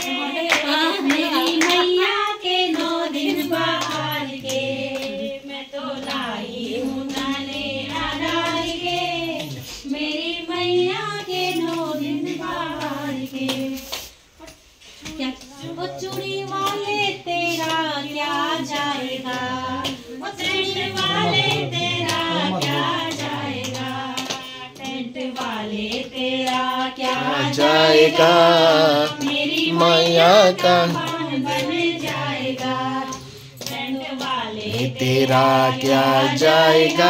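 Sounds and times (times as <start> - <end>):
hand claps: 0.0 - 37.0
women singing together: 0.0 - 37.0.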